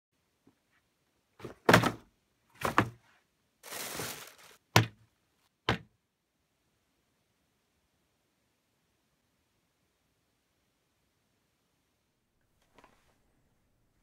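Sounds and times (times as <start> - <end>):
tissue paper rustling: 3.6 - 4.7.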